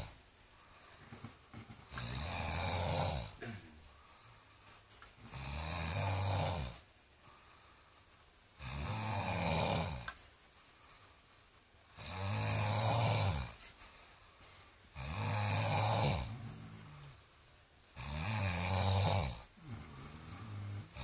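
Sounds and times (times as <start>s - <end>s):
man snoring: 1.0s - 4.3s, 5.2s - 6.8s, 8.6s - 10.1s, 11.9s - 13.6s, 14.9s - 17.2s, 17.9s - 21.0s.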